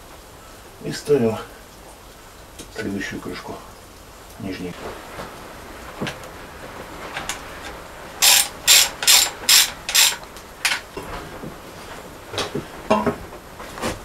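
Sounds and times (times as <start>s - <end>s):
ratchet wrench ratcheting: 8.2s - 10.8s.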